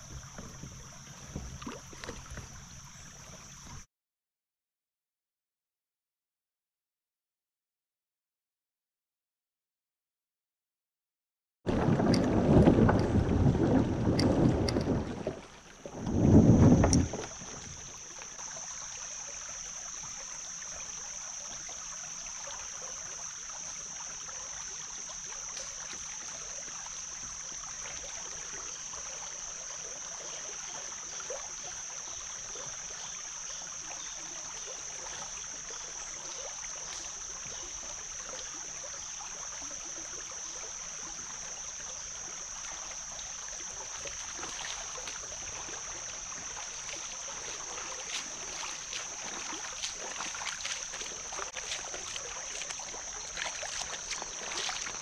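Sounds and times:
rushing water: 0.0s - 3.9s, 11.7s - 55.0s
faint ticks: 14.1s - 14.9s, 16.0s - 18.4s.

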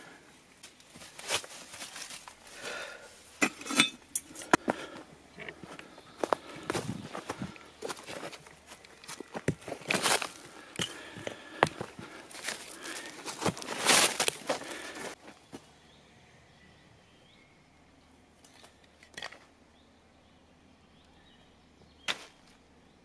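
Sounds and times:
tarpaulin rustling and crinkling: 0.6s - 3.1s, 4.4s - 15.6s.

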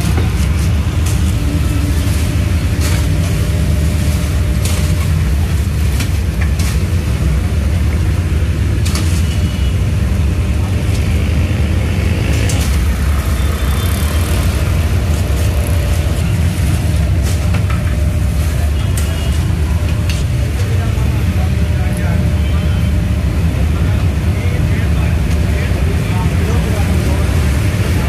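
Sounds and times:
steady low rumble: 0.0s - 9.0s.

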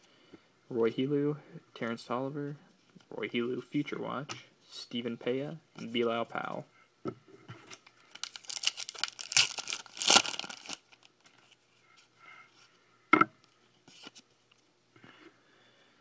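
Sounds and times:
foil wrapper tearing: 8.0s - 11.1s.

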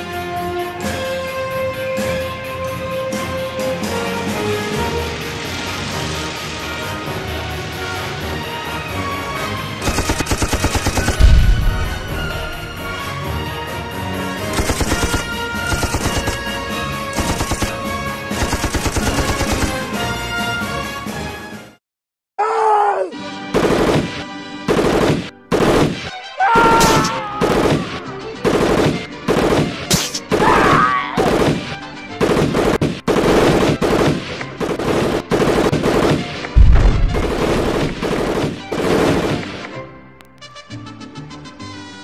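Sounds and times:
music: 0.0s - 21.8s, 22.4s - 42.0s
machine-gun fire: 9.8s - 13.3s, 14.4s - 20.0s, 23.5s - 26.1s, 27.4s - 30.4s, 31.2s - 39.6s
heavy blast: 10.9s - 13.7s, 33.2s - 39.6s
men crying out: 22.4s - 23.2s, 26.4s - 28.2s, 30.4s - 31.3s.

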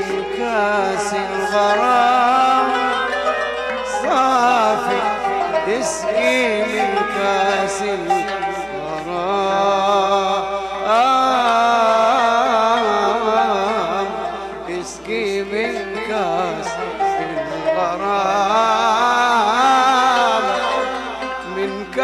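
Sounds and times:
man singing melismatic melody: 0.0s - 22.0s
oud playing: 0.0s - 22.0s.

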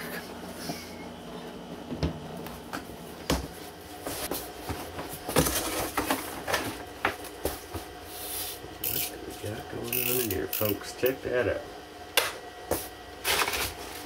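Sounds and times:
cardboard scraping and rustling: 4.0s - 6.8s.

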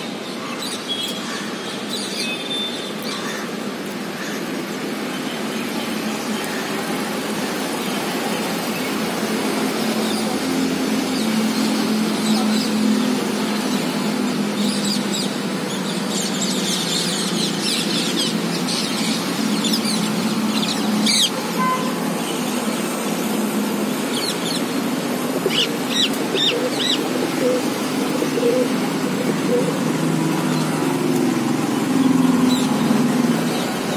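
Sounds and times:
city traffic hum: 0.0s - 33.9s
birds chirping: 23.8s - 33.9s.

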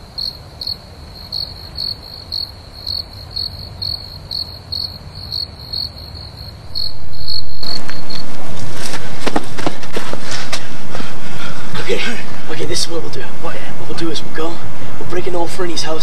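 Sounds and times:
crickets chirping: 0.0s - 16.0s
loud steady noise: 6.4s - 16.0s.

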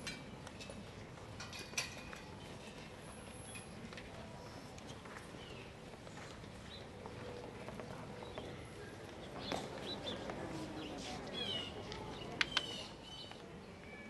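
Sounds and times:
faint murmured voices: 0.0s - 14.0s
birds chirping: 9.2s - 13.4s.

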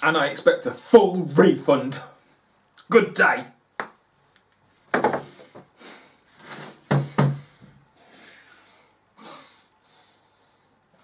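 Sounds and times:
man breathing heavily: 5.1s - 11.0s.

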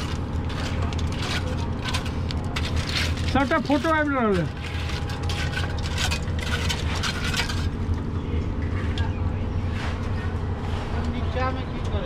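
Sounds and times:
tools scraping and clinking: 0.0s - 8.1s
engine humming: 0.0s - 12.0s.

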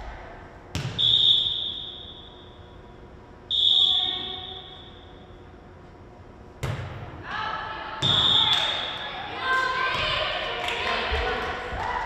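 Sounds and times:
volleyball being struck: 0.7s - 1.1s, 6.6s - 7.1s
referee's whistle blast: 0.9s - 2.4s.

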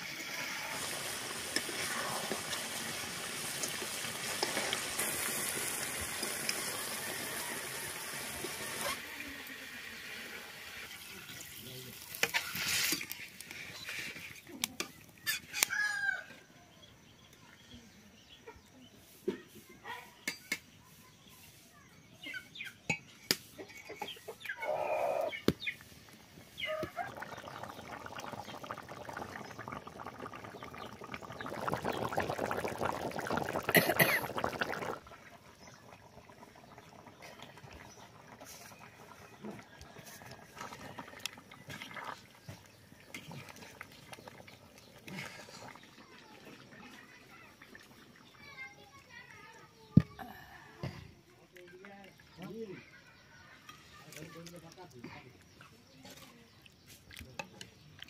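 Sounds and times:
curry bubbling in a wok: 0.0s - 15.6s, 25.7s - 49.4s
chickens clucking: 23.4s - 28.4s.

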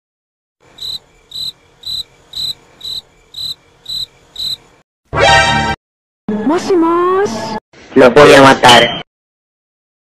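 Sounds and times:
cricket chirps: 0.6s - 4.8s.

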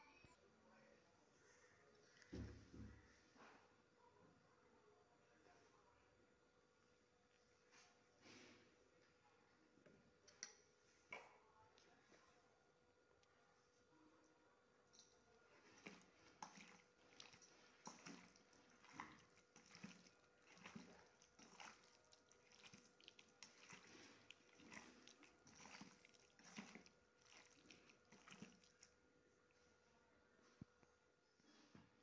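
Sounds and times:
wet squelching of raw chicken: 15.5s - 29.0s.

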